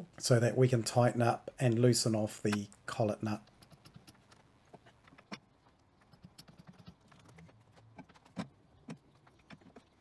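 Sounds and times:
faint clicks and metal taps: 0:01.4 - 0:10.0.

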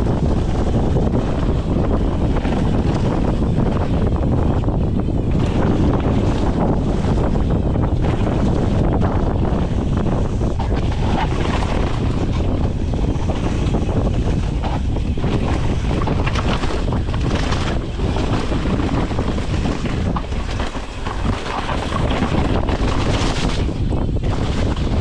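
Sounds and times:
bike rattling: 0:00.0 - 0:25.0
wind on microphone: 0:00.0 - 0:25.0.

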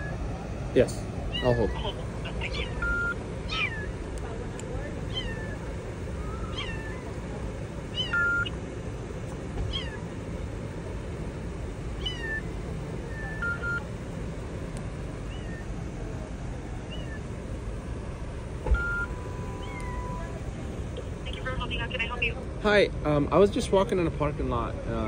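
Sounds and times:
kitten meowing: 0:01.3 - 0:04.0, 0:05.0 - 0:07.2, 0:07.9 - 0:08.5, 0:09.7 - 0:10.0, 0:12.0 - 0:12.5, 0:15.2 - 0:15.7, 0:16.9 - 0:17.2, 0:19.5 - 0:20.3.

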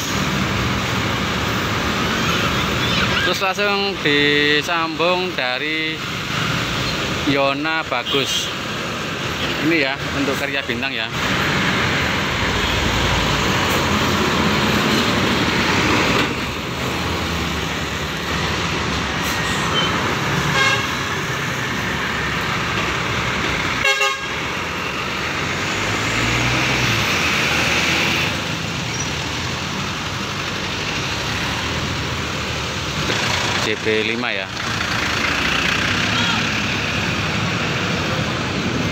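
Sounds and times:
horn toots: 0:19.6 - 0:21.0, 0:23.8 - 0:24.4
coach diesel engine running: 0:28.2 - 0:38.9.

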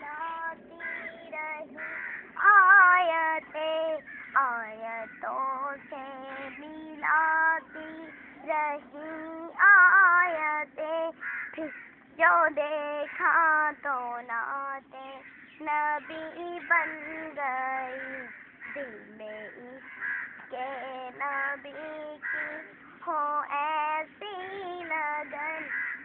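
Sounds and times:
girl singing unaccompanied: 0:00.0 - 0:26.0.

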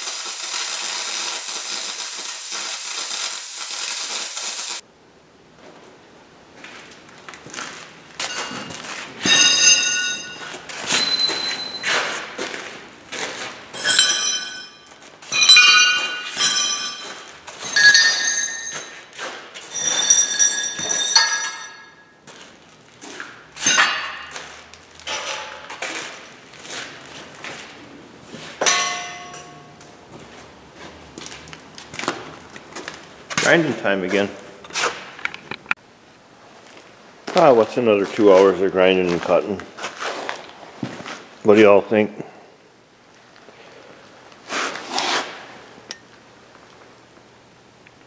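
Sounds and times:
steel strips clanging against metal: 0:13.8 - 0:22.0, 0:23.6 - 0:24.5.

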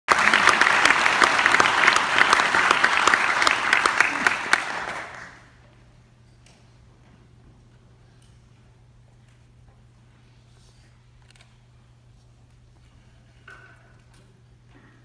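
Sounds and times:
audience applauding: 0:00.1 - 0:05.6.

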